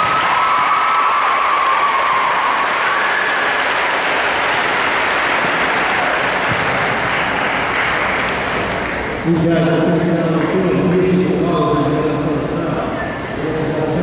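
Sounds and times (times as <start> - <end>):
crowd applauding: 0.0 - 9.2.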